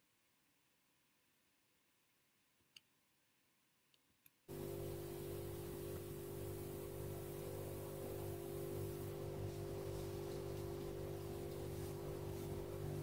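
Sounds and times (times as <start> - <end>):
steady low hum with hiss: 0.0 - 13.0.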